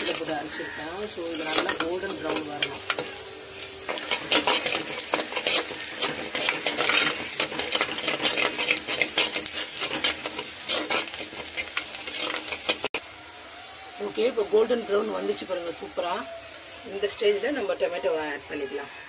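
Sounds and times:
metal spoon scraping clay pot: 0.0s - 13.0s
onions sizzling in hot oil: 0.0s - 19.0s.

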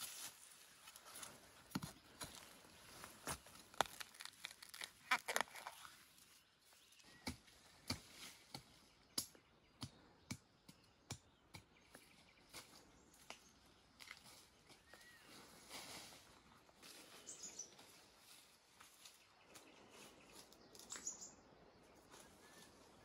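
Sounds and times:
dry leaves crackling and snapping: 2.9s - 7.1s.

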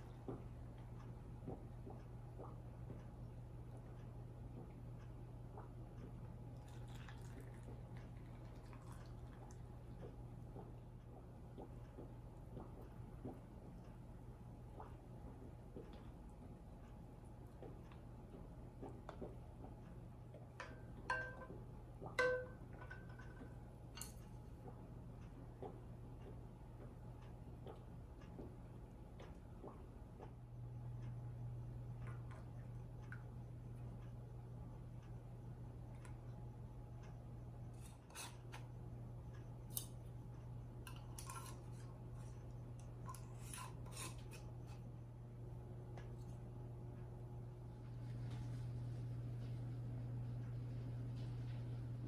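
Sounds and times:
low hum: 0.0s - 52.0s
glass jars clinking: 21.1s - 21.5s.

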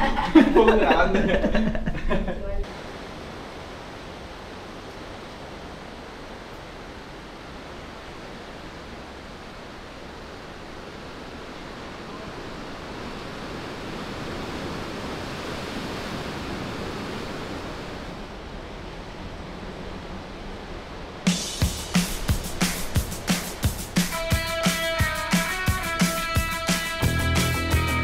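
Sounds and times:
surf breaking over rocks: 20.7s - 27.0s.

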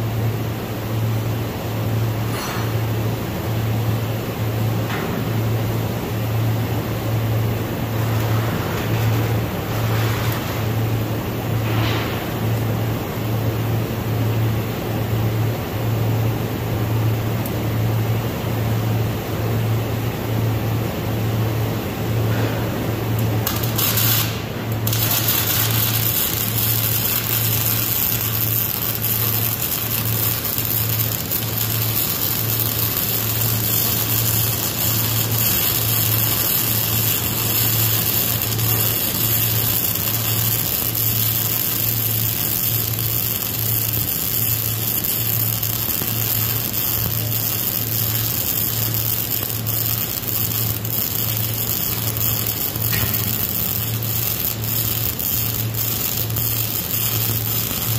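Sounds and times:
welding arc crackling: 5.2s - 13.9s, 21.5s - 57.9s.

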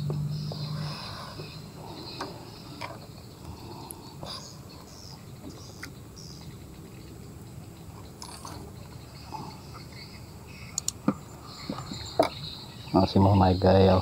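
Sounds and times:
small clicks: 10.8s - 11.0s.

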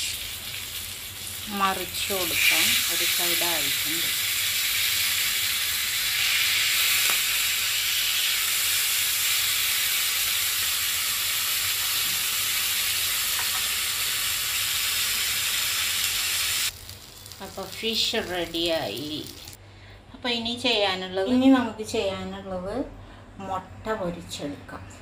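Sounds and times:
fish sizzling in hot oil: 0.0s - 19.6s.

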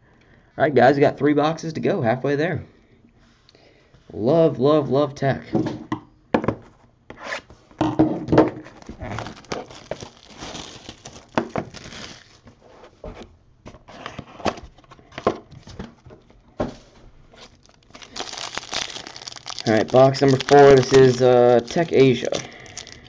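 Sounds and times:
wrapping crinkling and rustling: 8.7s - 12.6s, 17.3s - 23.0s.

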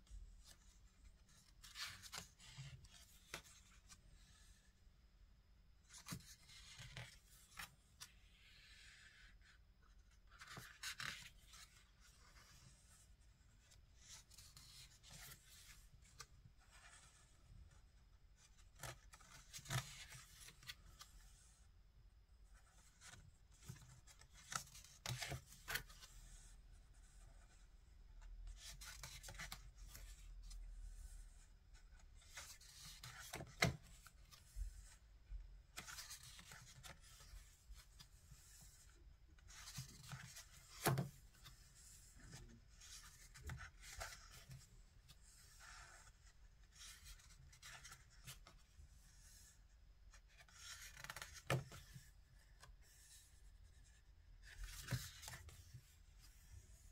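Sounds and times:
page flips: 10.3s - 12.7s, 18.4s - 21.4s, 28.6s - 30.2s, 35.8s - 38.8s, 50.4s - 52.1s, 54.5s - 56.5s.

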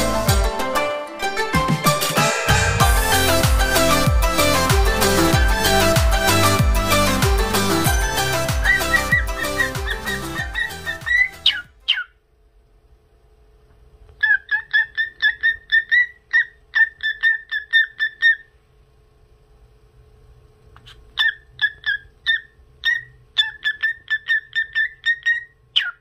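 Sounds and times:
cockatiel whistling: 8.6s - 12.2s, 14.2s - 18.5s, 21.2s - 26.0s.

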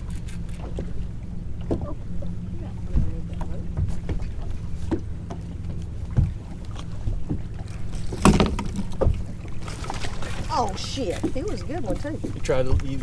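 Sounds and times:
boat motor humming: 0.0s - 13.0s
knocks and clatter: 8.0s - 9.2s.

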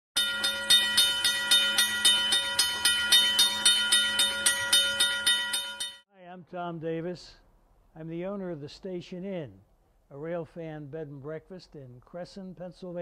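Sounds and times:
railroad crossing bell ringing: 0.2s - 6.0s.

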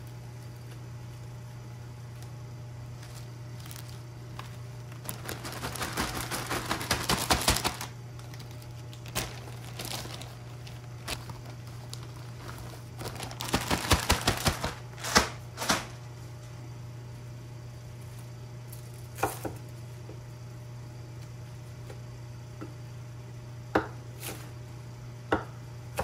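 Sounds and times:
steady low hum: 0.0s - 26.0s
plastic bag crinkling: 2.8s - 16.0s.

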